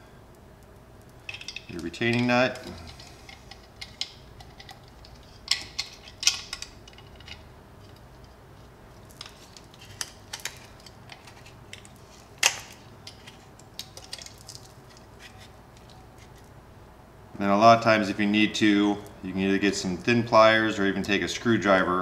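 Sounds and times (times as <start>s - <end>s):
small metal clicks and knocks: 0.6s - 16.5s.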